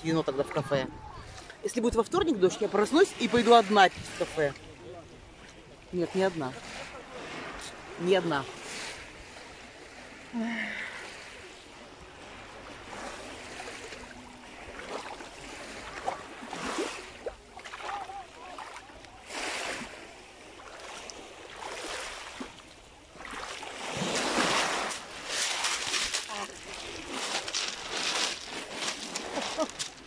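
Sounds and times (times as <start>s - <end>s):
sea waves breaking on shore: 0.0s - 30.0s
faint voices: 17.6s - 19.3s, 26.2s - 30.0s.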